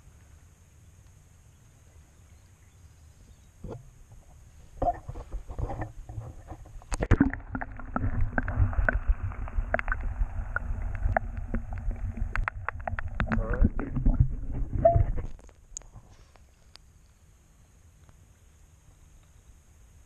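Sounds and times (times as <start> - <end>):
muffled underwater rumble: 3.3 - 16.8
water splashes: 4.7 - 16.2.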